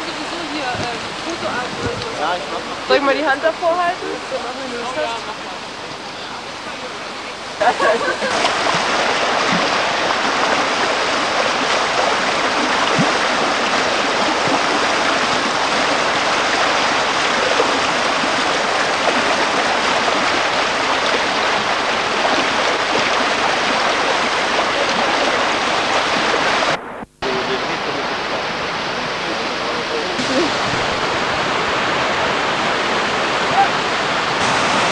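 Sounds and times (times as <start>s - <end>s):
river rapids rushing over rocks: 0.0s - 26.8s, 30.1s - 34.9s.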